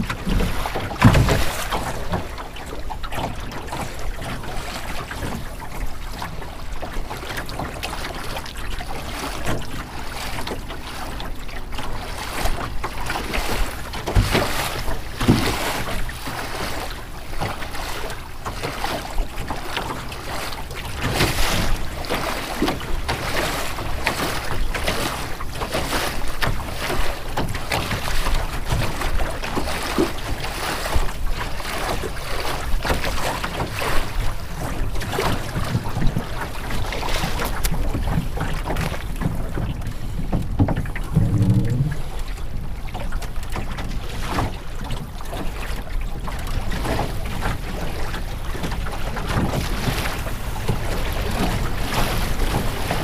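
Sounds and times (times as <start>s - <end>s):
water splashing against boat hull: 0.0s - 53.0s
wind buffeting microphone: 32.8s - 44.7s.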